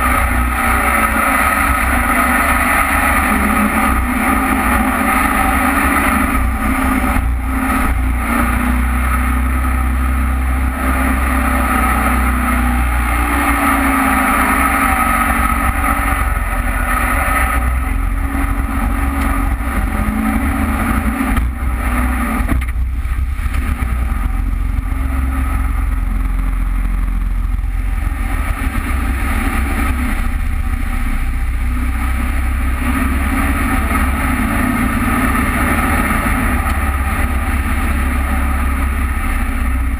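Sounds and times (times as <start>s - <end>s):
boat engine running hard: 0.0s - 39.9s.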